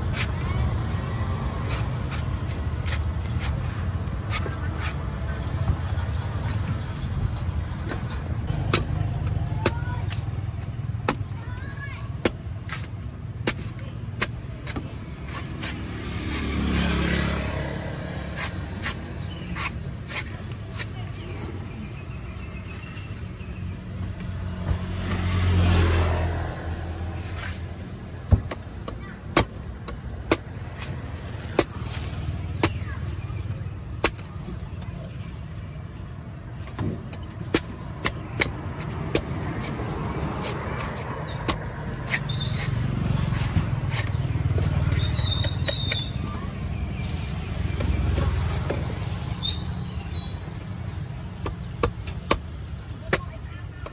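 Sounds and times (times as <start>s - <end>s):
traffic rumble: 0.0s - 53.9s
cleaver chopping coconut husk: 7.9s - 21.0s, 28.3s - 34.9s, 36.6s - 46.7s, 51.2s - 53.9s
vehicle passing: 15.2s - 19.7s, 24.7s - 27.8s, 38.6s - 45.2s.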